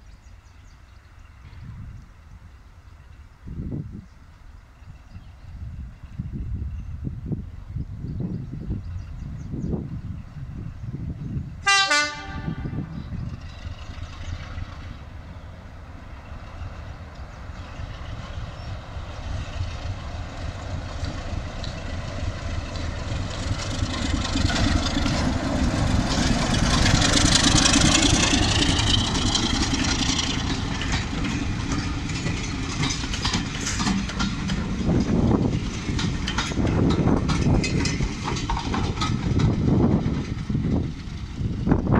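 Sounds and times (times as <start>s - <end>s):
diesel locomotive engine passing: 0.0s - 41.9s
train wheels on rails: 0.4s - 41.9s
train horn blast: 11.6s - 13.0s.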